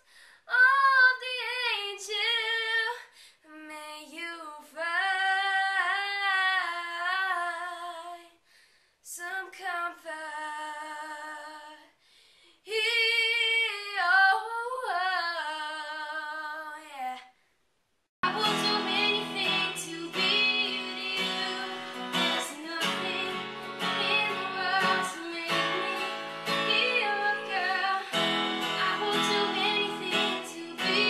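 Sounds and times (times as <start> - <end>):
boy singing unaccompanied: 18.2 - 31.0.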